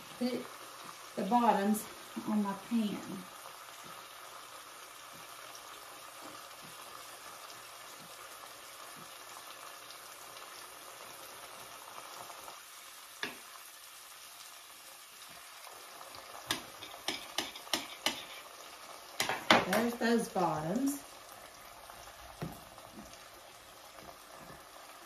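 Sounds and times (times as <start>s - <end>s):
onion and beef sizzling in a skillet: 0.0s - 25.0s.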